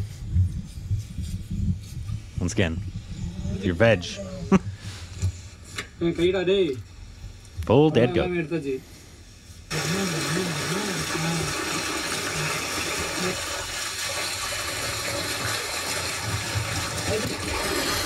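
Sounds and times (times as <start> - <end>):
low wavering tone: 0.0 - 4.6
water flowing and splashing: 9.7 - 18.0.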